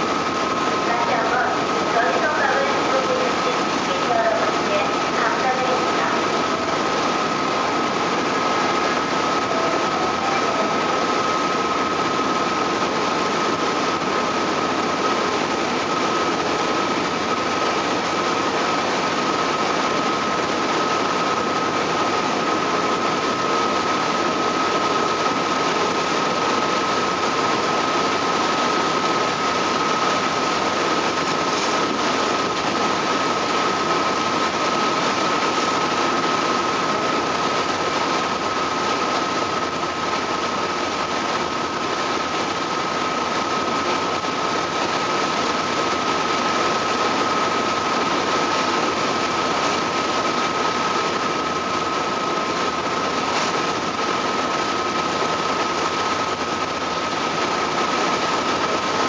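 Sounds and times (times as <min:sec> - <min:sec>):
high whine: 0:00.0 - 0:40.6
ferry engines droning: 0:00.8 - 0:12.0.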